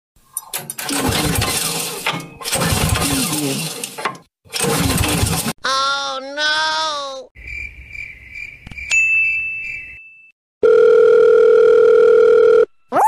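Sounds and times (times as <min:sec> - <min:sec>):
cartoon voice-like sound: 0:05.6 - 0:07.4
telephone dial tone: 0:10.6 - 0:12.7.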